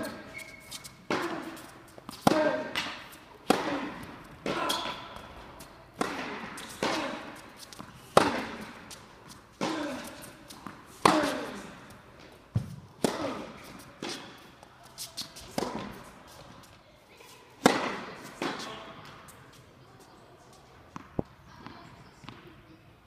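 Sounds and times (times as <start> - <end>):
tennis ball bouncing on hard court: 0.8 - 5.4, 6.0 - 11.6, 12.2 - 14.4, 15.3 - 16.0, 17.6 - 19.2, 20.9 - 22.5
tennis ball struck by rackets: 1.0 - 9.0, 9.6 - 11.7, 12.5 - 14.4, 15.4 - 16.0, 17.6 - 18.8.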